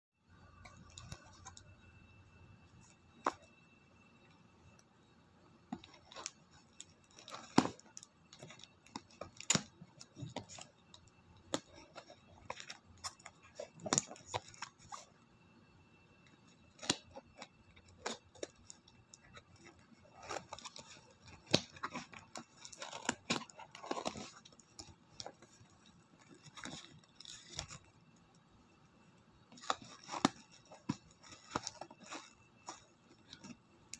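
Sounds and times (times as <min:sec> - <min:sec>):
packaging crinkling: 0:05.8 - 0:15.1, 0:16.6 - 0:28.0, 0:29.5 - 0:33.6.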